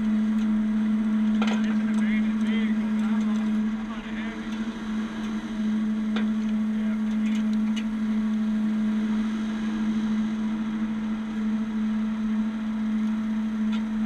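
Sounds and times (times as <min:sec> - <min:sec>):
truck engine and hydraulics humming: 0:00.0 - 0:14.0.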